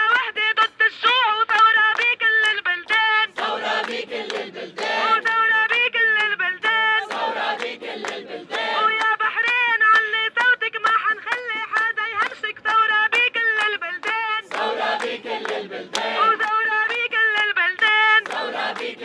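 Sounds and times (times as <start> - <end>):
woman leading sung chant: 0.0 - 19.0
crowd chanting in unison: 3.3 - 5.6, 6.6 - 9.1, 14.4 - 16.7, 18.2 - 19.0.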